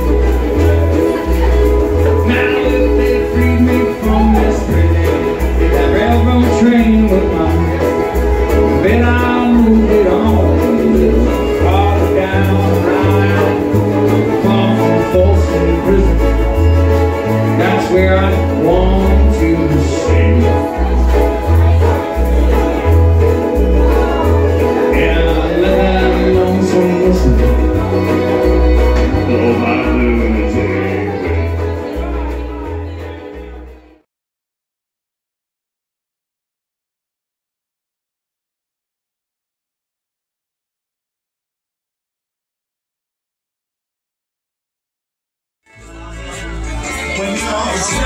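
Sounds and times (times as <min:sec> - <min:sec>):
bass line: 0:00.0 - 0:34.0, 0:45.6 - 0:48.0
fiddle: 0:00.0 - 0:34.0, 0:45.7 - 0:48.0
person singing: 0:00.0 - 0:34.0, 0:45.7 - 0:48.0
strummed strings: 0:00.0 - 0:34.0, 0:45.7 - 0:48.0.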